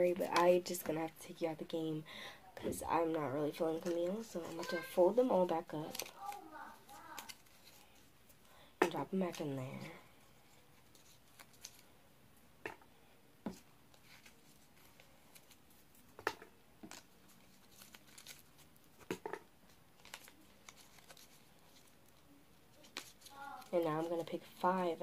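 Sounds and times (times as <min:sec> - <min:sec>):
paper rustling: 0:03.6 - 0:08.1, 0:10.5 - 0:11.9, 0:13.5 - 0:16.2, 0:16.8 - 0:25.0.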